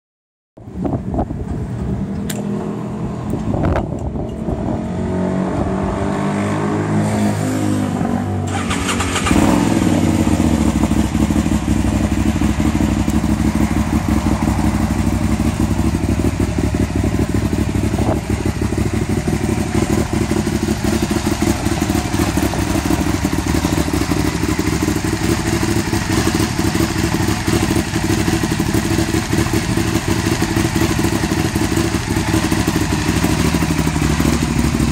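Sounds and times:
motorcycle engine starting and idling: 8.4s - 34.9s.

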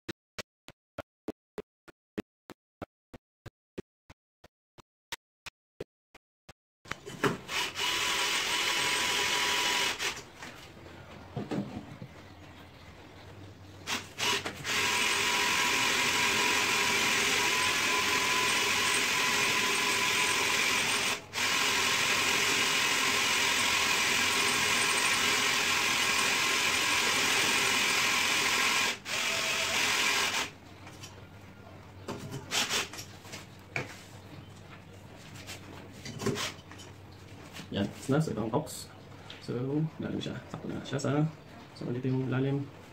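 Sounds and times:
drill boring into tiled wall: 7.4s - 10.2s, 13.9s - 30.6s.

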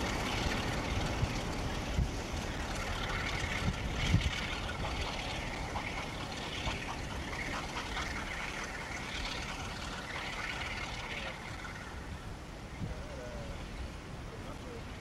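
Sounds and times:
steam locomotive exhaust beats: 0.0s - 11.8s
wind and rain hiss: 0.0s - 15.0s.

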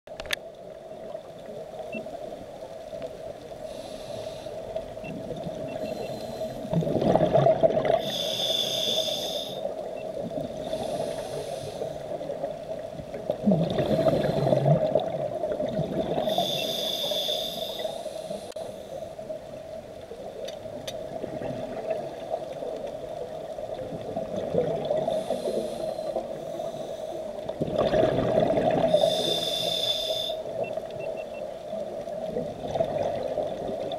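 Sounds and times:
regulator inhale hiss: 3.6s - 4.8s, 5.8s - 6.8s, 8.0s - 9.8s, 10.6s - 12.2s, 13.8s - 14.8s, 16.2s - 19.3s, 25.0s - 27.4s, 28.8s - 30.6s
exhaled bubbles gurgling: 5.0s - 18.0s, 20.6s - 26.7s, 27.4s - 29.8s, 31.9s - 33.9s.

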